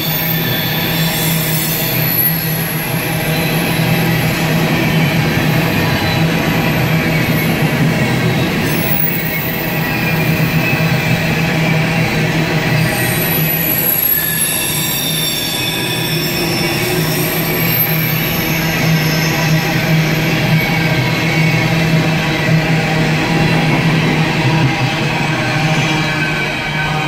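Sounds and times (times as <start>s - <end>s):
wheel squeal: 0.0s - 11.6s, 12.7s - 21.6s
train wheels rumbling on rail: 0.0s - 27.0s.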